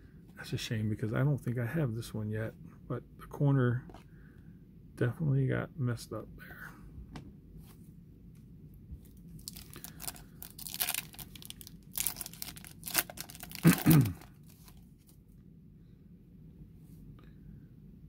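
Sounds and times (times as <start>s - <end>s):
foil wrapper tearing and crinkling: 9.4s - 14.8s.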